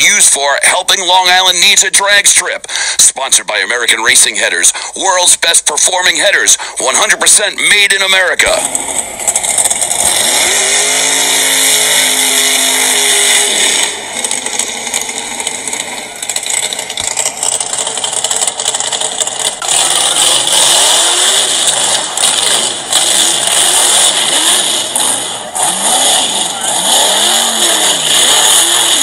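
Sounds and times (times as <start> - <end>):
engine revving: 8.4 - 29.0.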